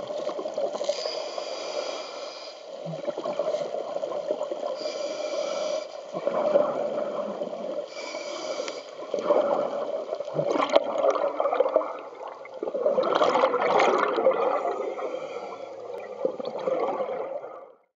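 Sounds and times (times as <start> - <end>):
regulator hissing inhale: 0.8 - 2.8, 4.6 - 6.2, 7.8 - 9.2, 14.7 - 15.9
exhaust bubbles gurgling: 2.8 - 4.8, 6.1 - 7.9, 9.0 - 17.9.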